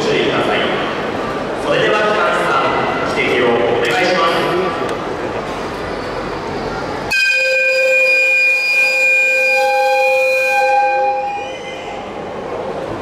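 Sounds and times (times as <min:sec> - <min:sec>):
locomotive whistle blast: 0:07.1 - 0:12.2.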